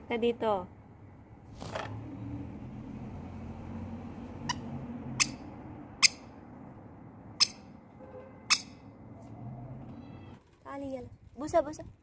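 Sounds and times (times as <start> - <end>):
parrot screeching: 8.5 - 8.8.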